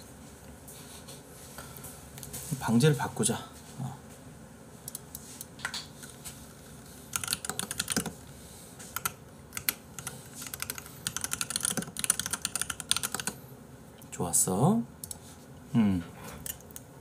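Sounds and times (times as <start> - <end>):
keyboard typing: 7.1 - 8.2, 8.8 - 13.4.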